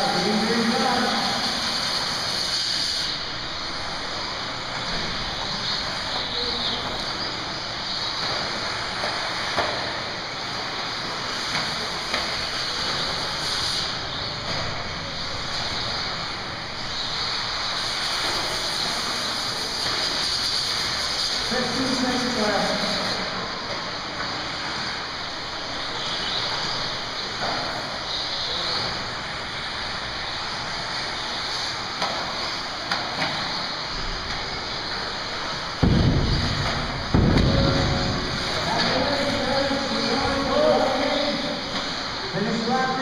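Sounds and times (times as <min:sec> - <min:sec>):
radio-controlled cars whining: 0:00.0 - 0:43.0
sharp knocks: 0:35.8 - 0:38.0.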